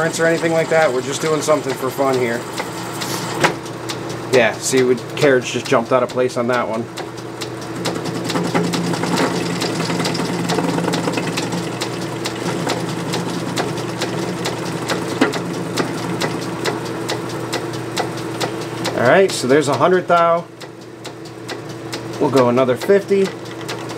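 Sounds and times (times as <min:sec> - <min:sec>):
metal lathe humming: 0:00.0 - 0:06.5, 0:07.2 - 0:19.7.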